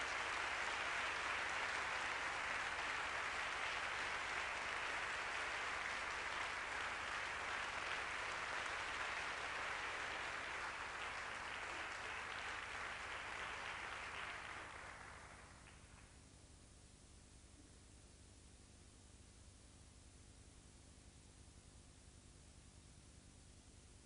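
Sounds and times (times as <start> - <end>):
audience applauding: 0.0 - 16.1.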